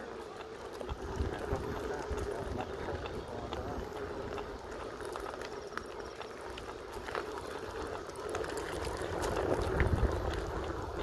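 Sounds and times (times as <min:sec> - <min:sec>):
electric unicycle rolling hum: 0:00.0 - 0:11.0
wind rumble on microphone: 0:00.8 - 0:04.8, 0:08.4 - 0:11.0.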